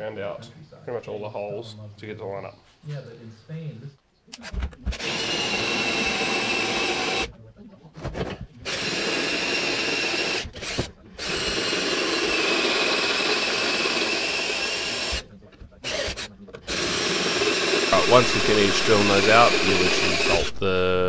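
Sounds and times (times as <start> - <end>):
power drill drilling metal: 4.9 - 7.3, 8.7 - 15.2, 15.8 - 20.6.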